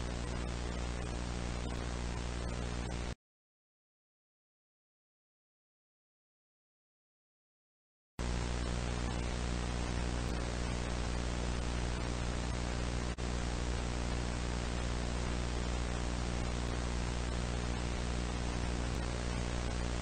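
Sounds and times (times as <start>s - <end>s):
static hiss: 0.0s - 3.2s, 8.2s - 20.0s.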